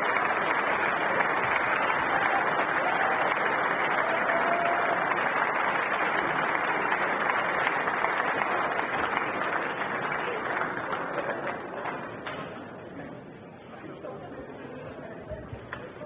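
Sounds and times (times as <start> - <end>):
crowd applauding: 0.0 - 12.6.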